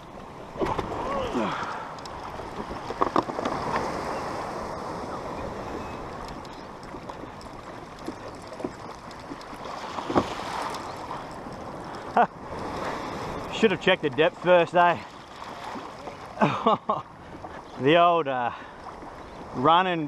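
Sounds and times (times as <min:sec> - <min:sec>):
kayak bumps: 0:00.0 - 0:04.3, 0:05.4 - 0:14.4
water rushing along a hull: 0:00.0 - 0:20.0.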